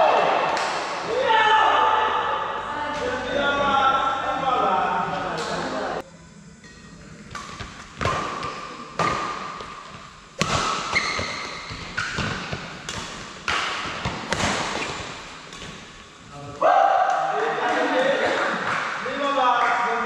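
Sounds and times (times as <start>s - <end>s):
rackets hitting shuttlecock: 7.3s - 16.0s
shoe squeaks on court: 10.7s - 12.2s.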